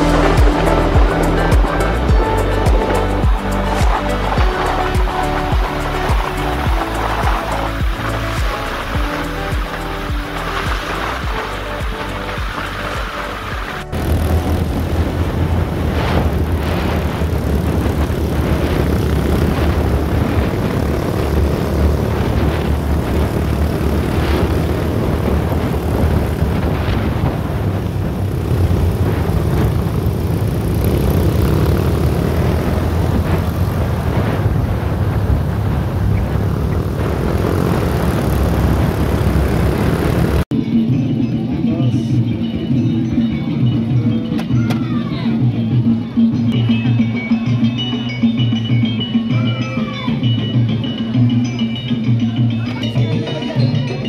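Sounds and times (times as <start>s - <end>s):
rushing wind-like noise: 0.0s - 40.7s
large engine rumbling: 0.0s - 47.2s.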